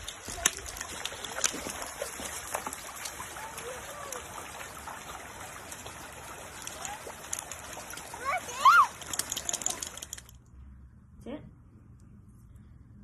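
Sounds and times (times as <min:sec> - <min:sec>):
dog splashing through water: 0:00.0 - 0:10.2
stream running over stones: 0:00.0 - 0:10.3.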